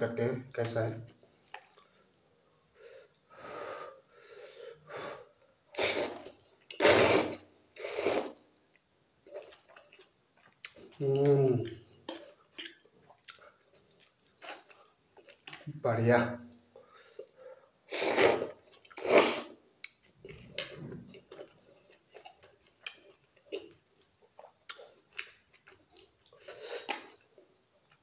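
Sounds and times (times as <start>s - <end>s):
person slurping noodles: 5.8s - 8.4s, 17.9s - 19.6s.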